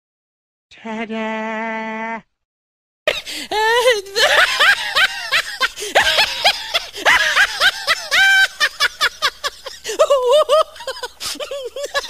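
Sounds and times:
cartoonish choppy laugh: 3.8s - 12.0s.

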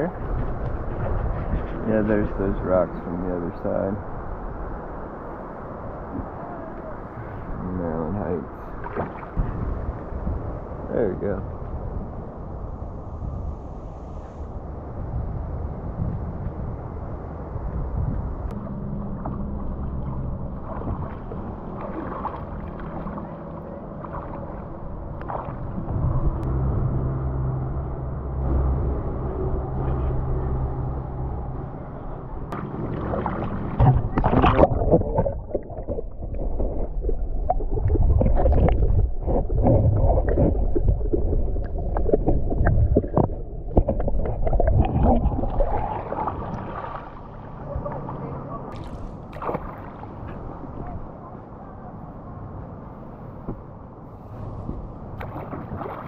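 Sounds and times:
muffled water sloshing and splashing: 0.0s - 14.6s, 15.8s - 51.3s, 53.4s - 56.0s
low steady hum: 0.0s - 56.0s
held low tones: 18.5s - 46.6s.

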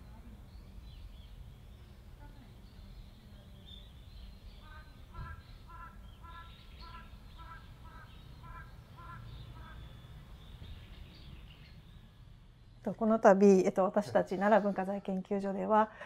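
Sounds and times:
short bird calls: 4.5s - 12.1s.

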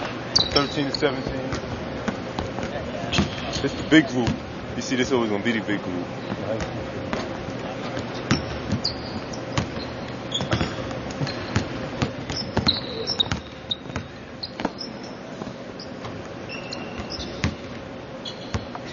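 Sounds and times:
sneaker squeaks: 0.0s - 4.5s, 6.1s - 18.9s
basketball dribbling on hardwood: 8.0s - 14.8s, 17.0s - 17.7s.

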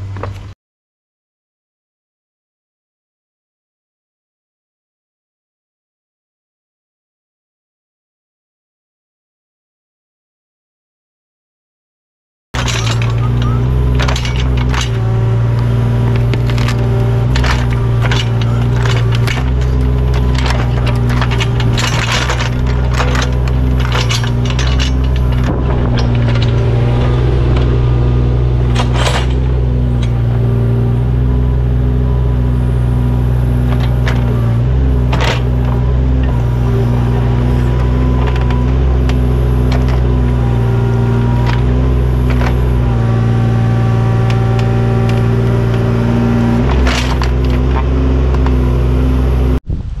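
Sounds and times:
engine running low: 12.6s - 49.9s.

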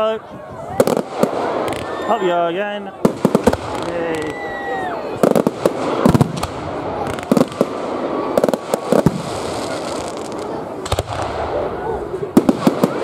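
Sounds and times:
firework shells bursting: 5.2s - 11.5s.

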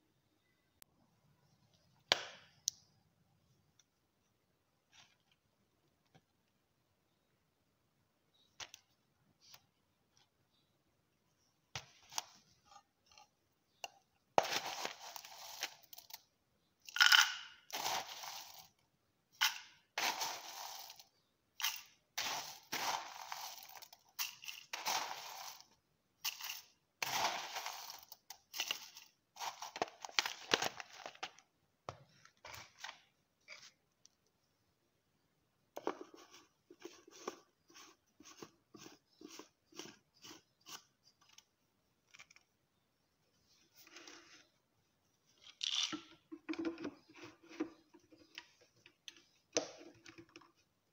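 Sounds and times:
spoon scraping dry spice: 19.5s - 29.6s, 36.3s - 41.2s.

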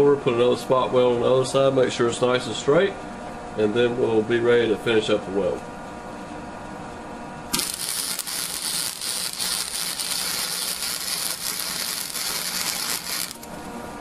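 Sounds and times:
welder arc crackling: 7.5s - 13.7s.

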